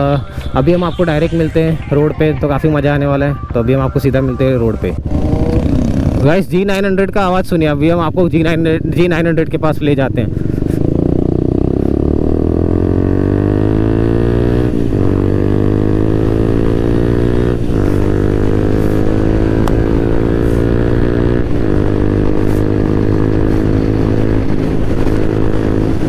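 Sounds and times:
motorcycle engine accelerating: 4.9 - 6.6, 10.0 - 26.0.

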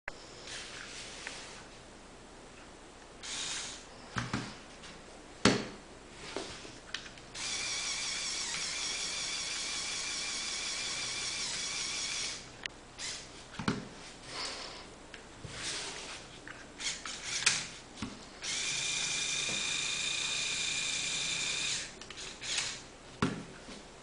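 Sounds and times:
small electric motor whining: 7.4 - 12.4, 18.4 - 22.8.

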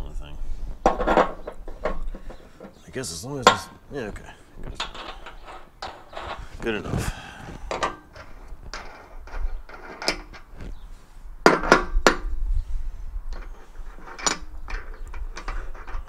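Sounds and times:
metal tools clinking and knocking: 0.8 - 3.7, 4.8 - 6.6, 13.3 - 16.0.

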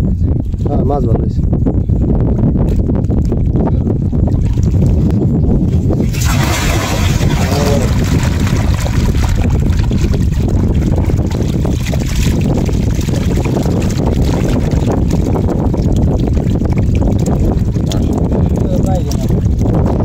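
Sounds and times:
wind buffeting microphone: 0.0 - 20.0
fish slapping and splashing: 6.0 - 19.6
water trickling: 6.0 - 19.7.

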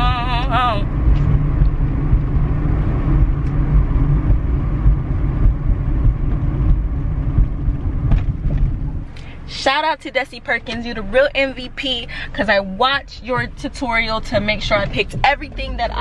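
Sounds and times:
car driving rumble: 0.0 - 16.0.

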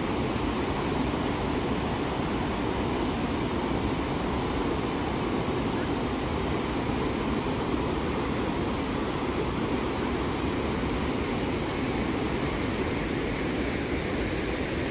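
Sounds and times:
waterfall rushing whitewater: 0.0 - 14.9.

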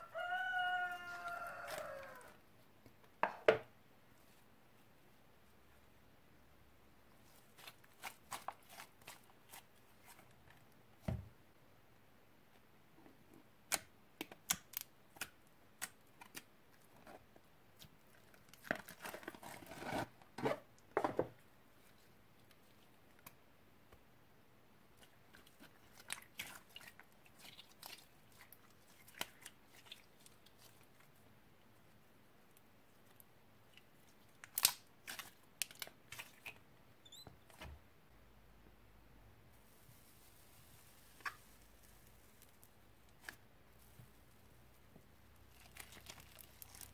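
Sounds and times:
slime clicking and crackling by hand: 7.5 - 10.3, 13.6 - 17.2, 25.0 - 31.1, 33.0 - 36.6, 45.4 - 46.9.

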